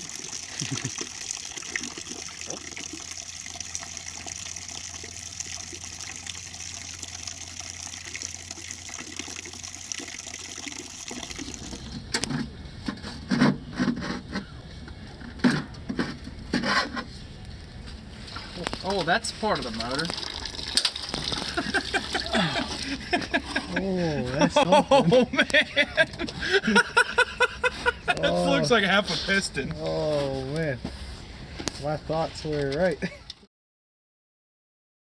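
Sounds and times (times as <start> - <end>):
oil pouring and splashing: 0.0 - 12.1, 18.3 - 23.5.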